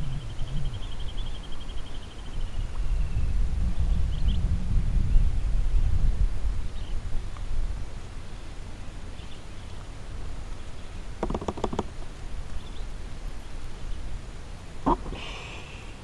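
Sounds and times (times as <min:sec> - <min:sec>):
wind buffeting microphone: 0:00.0 - 0:08.4
sharp clicks: 0:11.2 - 0:11.9.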